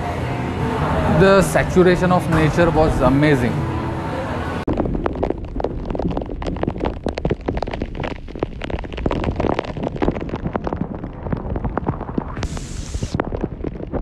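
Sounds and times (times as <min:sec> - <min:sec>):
heavy rain drops striking: 0:04.7 - 0:14.0
wind rumble on microphone: 0:04.7 - 0:14.0.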